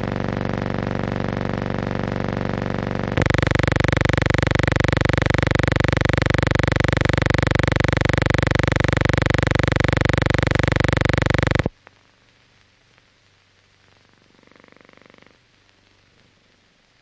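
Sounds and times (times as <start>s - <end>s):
loud pulsing buzz: 0.0s - 11.7s.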